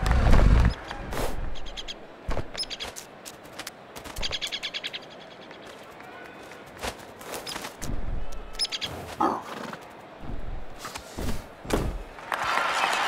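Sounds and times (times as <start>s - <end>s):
applause: 12.2s - 13.0s.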